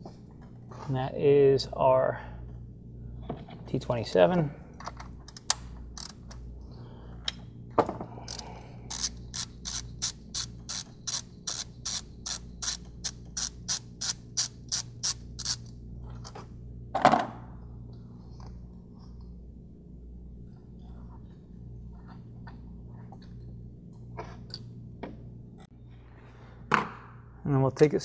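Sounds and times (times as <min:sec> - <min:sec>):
hand ratchet clicking: 0:05.3 - 0:06.3, 0:08.3 - 0:15.6.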